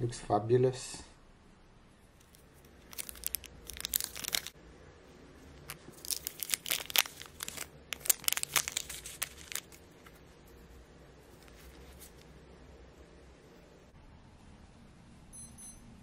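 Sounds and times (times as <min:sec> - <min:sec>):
paper packet crinkling: 0:02.2 - 0:04.6, 0:05.6 - 0:12.3.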